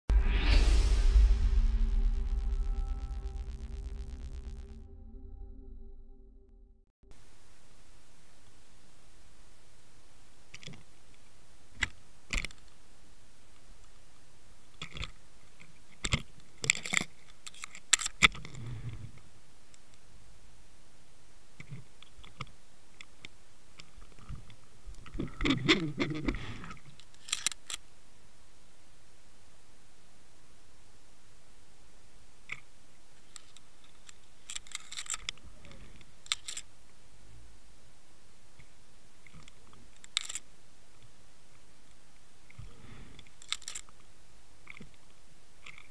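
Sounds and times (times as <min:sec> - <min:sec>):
short low rumble: 0:00.1 - 0:06.9.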